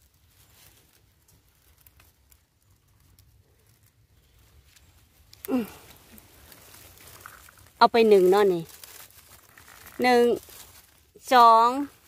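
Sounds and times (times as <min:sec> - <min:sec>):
dry leaves rustling: 0:00.0 - 0:12.0
person's short voiced sound: 0:05.5 - 0:05.8.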